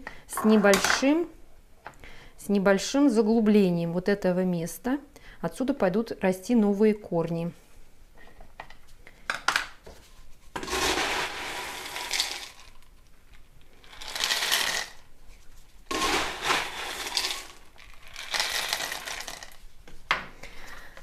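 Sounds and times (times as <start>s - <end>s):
clay pebbles rattling into plastic pot: 10.6s - 15.1s, 15.9s - 19.6s.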